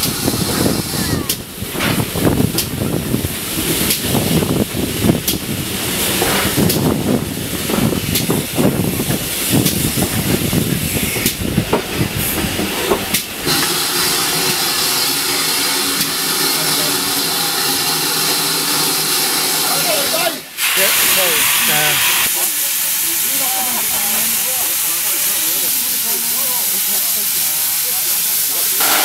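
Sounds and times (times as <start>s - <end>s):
train rumble: 0.0s - 19.9s
steam hissing from locomotive: 0.0s - 29.0s.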